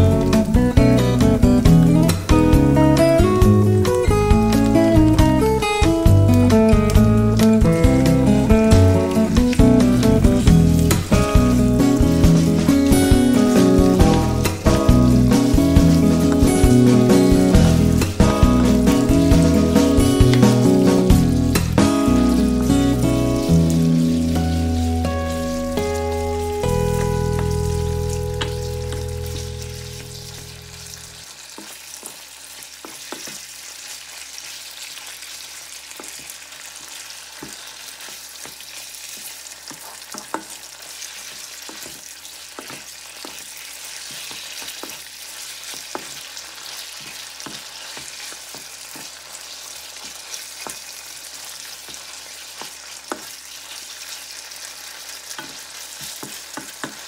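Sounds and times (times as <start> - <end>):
background music: 0.0 - 31.2
meat and onion sizzling in a wok: 0.0 - 57.0.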